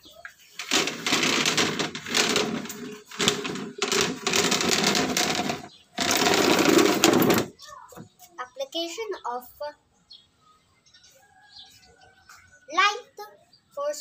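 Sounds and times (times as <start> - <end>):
plastic chair scraping on tiles: 0.6 - 8.1.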